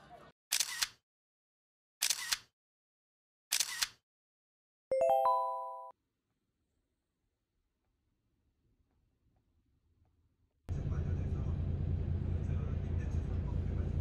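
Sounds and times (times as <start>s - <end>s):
rising bell-like chime: 4.9s - 5.9s.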